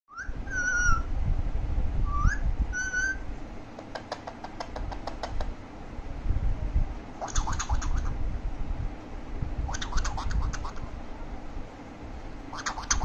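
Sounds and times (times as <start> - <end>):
parakeet whistling: 0.1 - 1.1, 2.0 - 3.3, 7.2 - 8.2, 9.7 - 10.9, 12.5 - 13.0
sharp clicks: 3.8 - 5.5.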